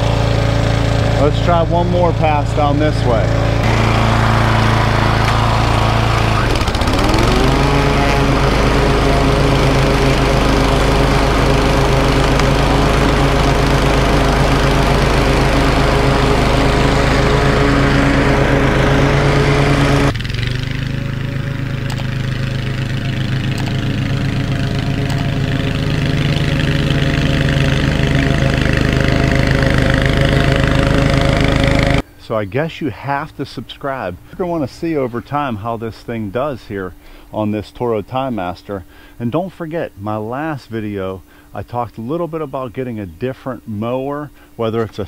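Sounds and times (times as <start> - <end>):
lawn mower engine running: 0.0 - 32.4.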